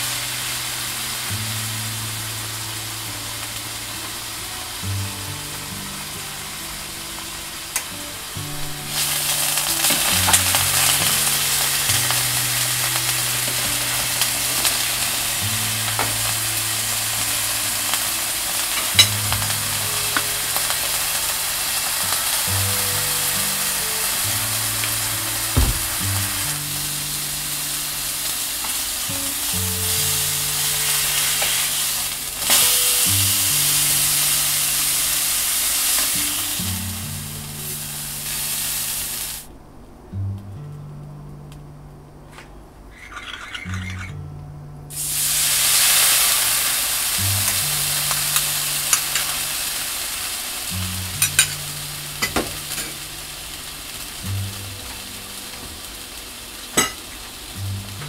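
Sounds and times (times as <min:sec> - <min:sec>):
steak sizzling in hot oil: 0:00.0 - 0:39.5, 0:44.9 - 0:58.0
soft background music: 0:00.0 - 0:58.0.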